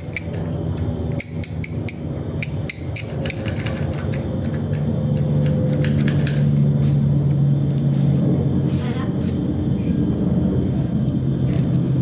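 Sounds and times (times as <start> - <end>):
rapid sharp high clicks: 0.0 - 6.7
low engine hum: 0.0 - 12.0.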